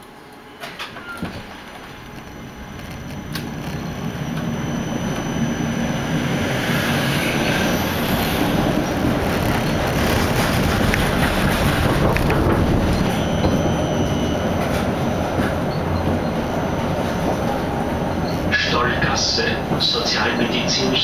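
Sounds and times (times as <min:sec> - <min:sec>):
tram wheels on rails: 0:00.0 - 0:21.0
thin high whine: 0:01.0 - 0:21.0.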